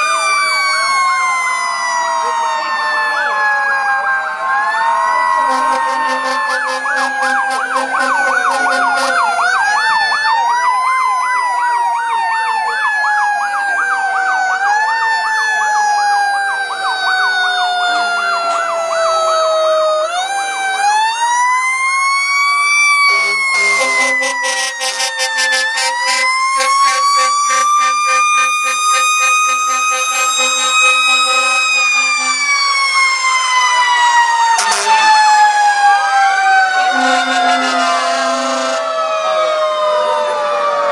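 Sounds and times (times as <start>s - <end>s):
fire truck siren wailing: 0.0s - 40.9s
rapid warbling siren yelp: 4.6s - 10.7s, 21.7s - 40.9s
low horn-like tones: 5.4s - 9.4s, 23.0s - 32.7s, 36.9s - 38.9s.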